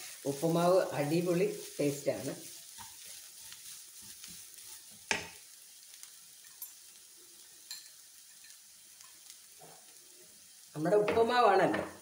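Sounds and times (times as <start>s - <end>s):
faint sizzle: 0.0s - 12.0s
spatula scraping pan: 1.5s - 5.4s.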